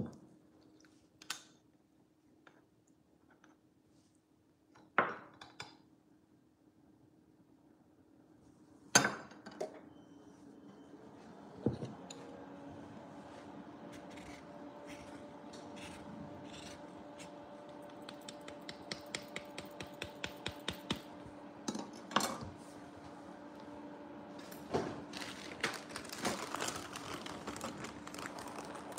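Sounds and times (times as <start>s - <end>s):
lemon scraping on grater: 13.9s - 17.4s.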